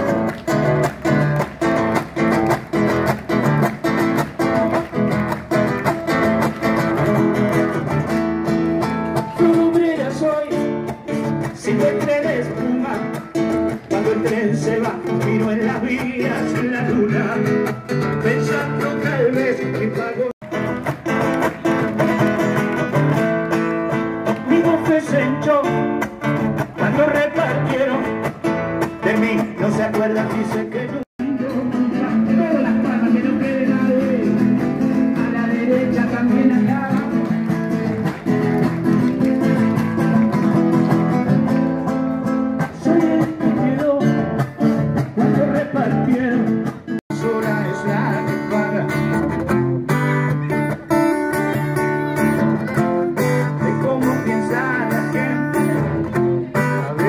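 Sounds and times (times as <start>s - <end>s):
guitar accompaniment: 0.0s - 57.0s
man singing through speakers: 9.2s - 20.6s, 24.4s - 26.0s, 26.7s - 28.3s, 28.9s - 38.3s, 42.6s - 44.4s, 45.0s - 49.3s, 50.3s - 57.0s.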